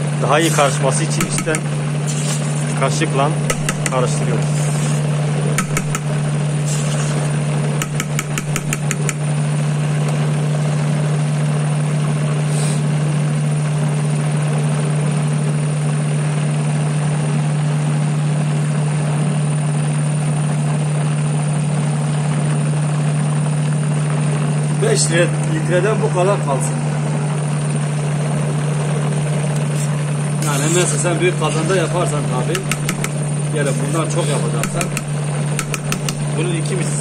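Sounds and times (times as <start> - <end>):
electric mixer motor humming: 0.0 - 11.2, 26.7 - 36.4.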